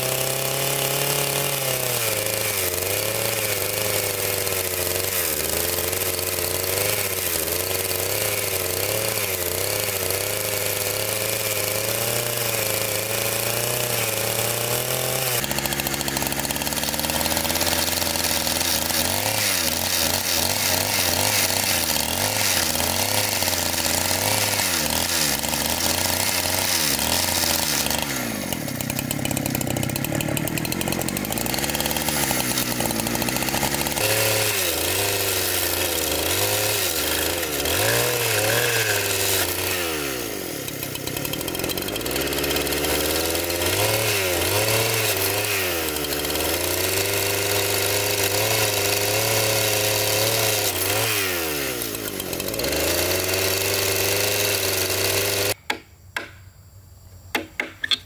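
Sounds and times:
engine-driven saw cutting wood: 0.0 - 55.6.

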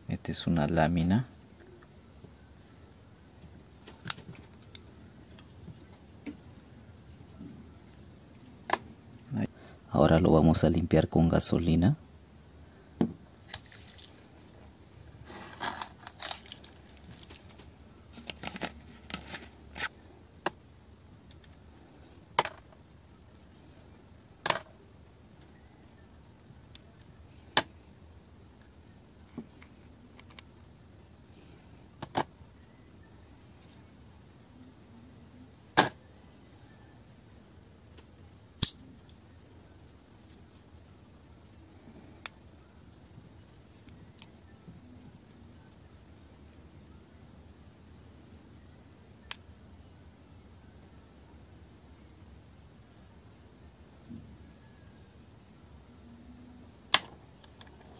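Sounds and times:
small metal parts clicking: 38.6 - 38.8.

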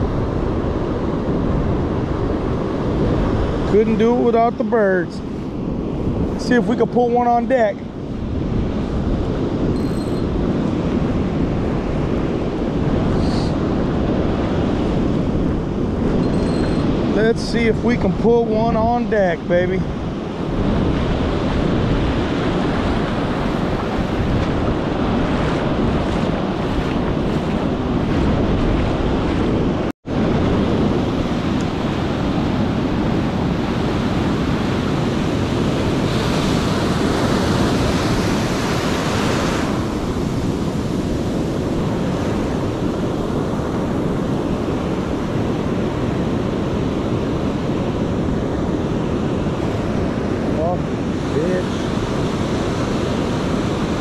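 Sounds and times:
ocean surf breaking on beach: 0.0 - 54.0
wind buffeting microphone: 0.0 - 54.0.

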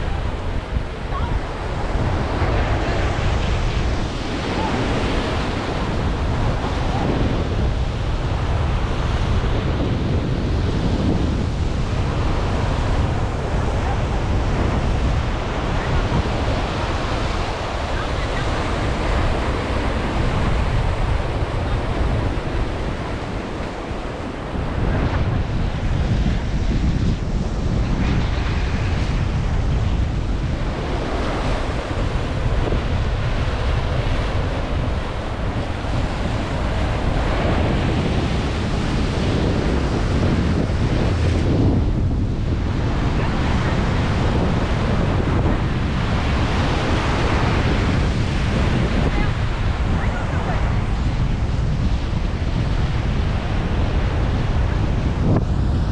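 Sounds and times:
sea surf breaking on rocks: 0.0 - 55.9
wind buffeting microphone: 0.0 - 55.9.

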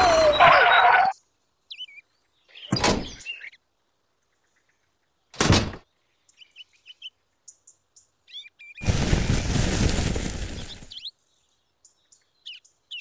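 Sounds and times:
faint bird chirps: 0.0 - 8.8, 10.9 - 13.0
granular mix pouring into metal drum: 8.8 - 10.9.

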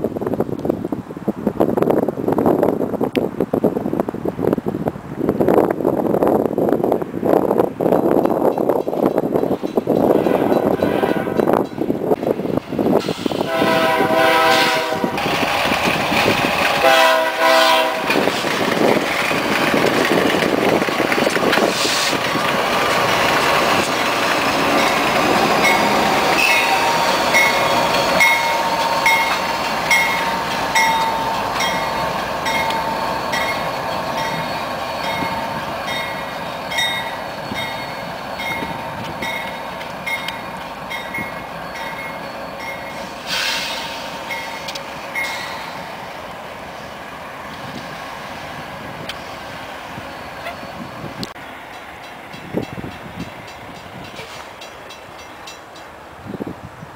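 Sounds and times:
freight train rolling past: 0.0 - 56.9
wheels clacking over rail joint: 7.9 - 13.8, 15.1 - 45.9, 50.3 - 56.0
locomotive horn blast: 10.2 - 11.5, 13.4 - 15.3, 16.8 - 18.3, 26.4 - 27.5
wheel squeal: 25.6 - 35.5.

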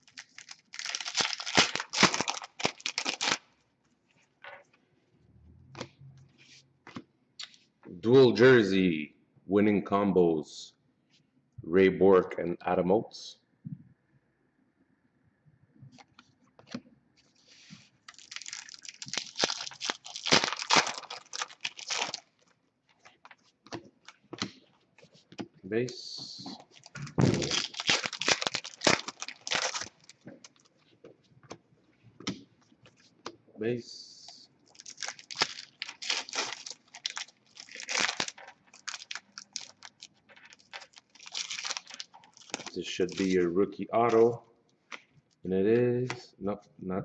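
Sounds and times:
foil pack tearing and crinkling: 0.0 - 3.4, 18.1 - 22.3, 26.7 - 30.6, 34.7 - 43.4.

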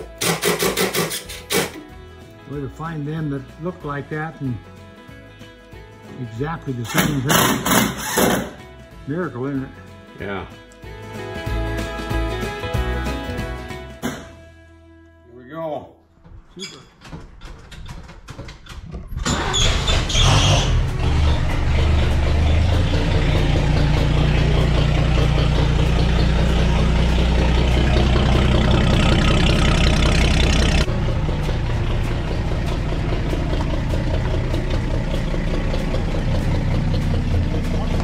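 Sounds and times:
starter cranking engine: 0.2 - 1.8, 6.9 - 8.6, 17.1 - 38.0
truck engine running rough: 19.3 - 38.0.

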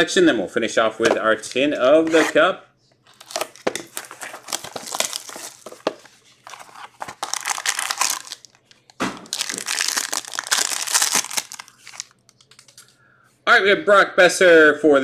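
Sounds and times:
packaging crinkling and tearing: 3.1 - 12.8.

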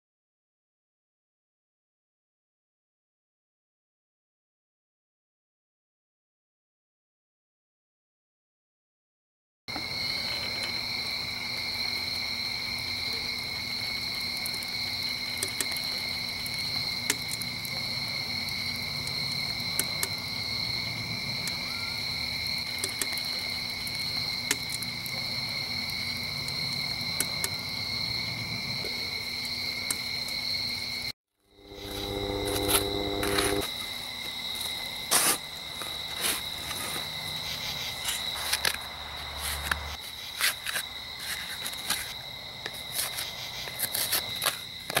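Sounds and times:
crickets trilling: 9.7 - 45.0
short low hum: 31.6 - 33.7.

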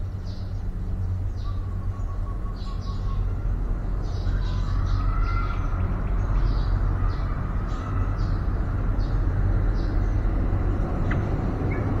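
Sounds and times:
steady low rumble: 0.0 - 12.0
faint high bird chirps: 1.3 - 3.4, 4.0 - 10.2.

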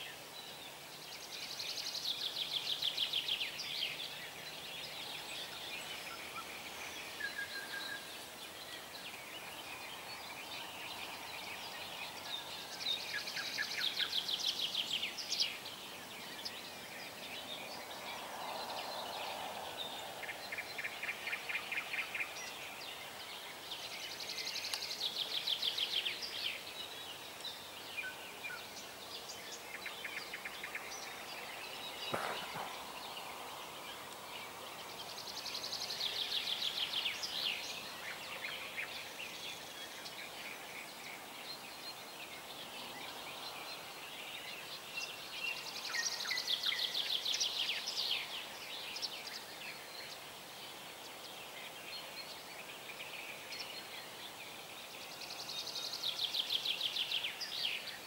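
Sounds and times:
outdoor hiss: 0.0 - 58.0
songbirds trilling: 0.6 - 58.0
bird chirps: 27.4 - 41.0.

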